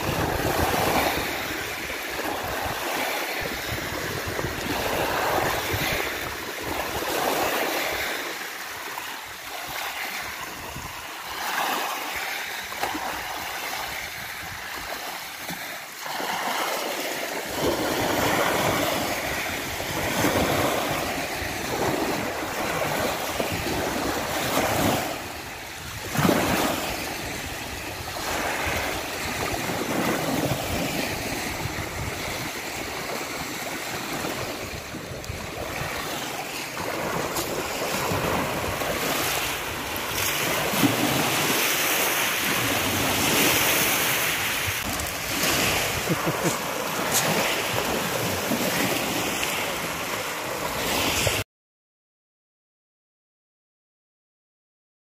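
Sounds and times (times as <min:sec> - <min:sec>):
wind rumble on microphone: 0:00.0 - 0:08.1, 0:09.5 - 0:11.4, 0:17.5 - 0:51.4
waves washing over pebbles: 0:00.0 - 0:51.4.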